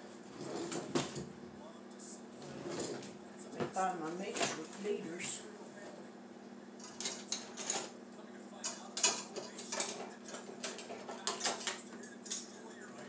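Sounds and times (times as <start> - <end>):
faint steady hum: 0.0 - 13.0
metal utensils clinking: 6.8 - 8.0, 8.6 - 12.7.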